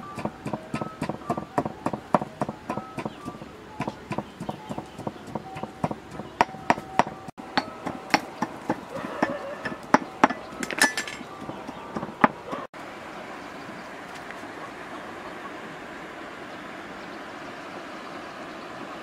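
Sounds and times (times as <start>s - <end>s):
steady outdoor hiss: 0.0s - 19.0s
knocks and clinks on wooden table: 5.4s - 12.4s
chicken clucks: 8.7s - 10.6s.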